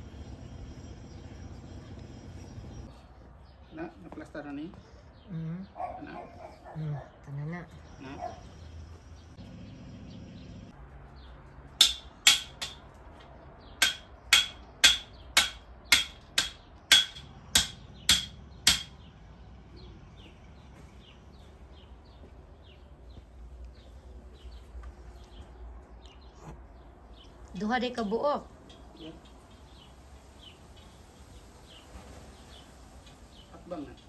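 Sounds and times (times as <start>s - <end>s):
hammer striking metal stake: 11.8s - 12.9s, 13.8s - 19.0s.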